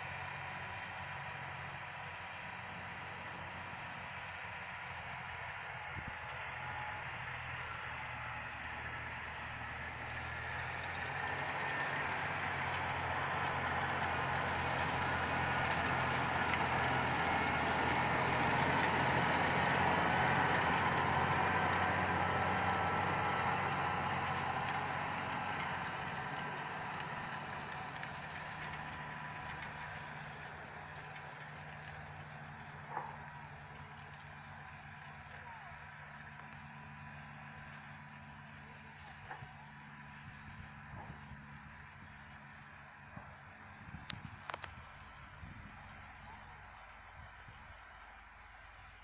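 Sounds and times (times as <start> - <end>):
harrow rushing through soil: 0.0 - 49.0
tractor engine running: 0.0 - 49.0.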